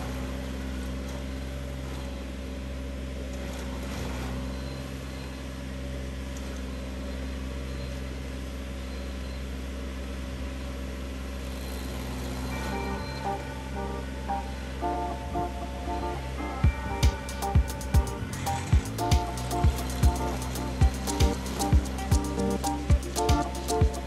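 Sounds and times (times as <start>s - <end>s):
stump grinder grinding: 11.6s - 24.0s.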